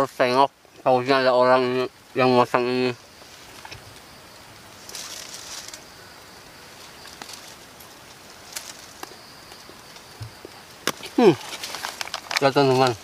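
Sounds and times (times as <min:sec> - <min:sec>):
leaves rustling: 0:00.0 - 0:13.0
small clicks from handling objects: 0:10.9 - 0:12.9.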